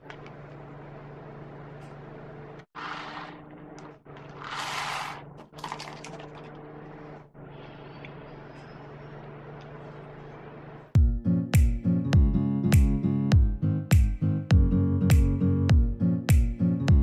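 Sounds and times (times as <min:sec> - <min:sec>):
steady low hum: 0:05.4 - 0:11.0.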